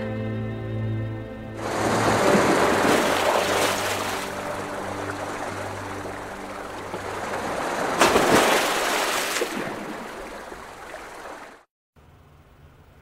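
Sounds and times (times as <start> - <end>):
waves breaking against rocks: 1.6 - 11.7.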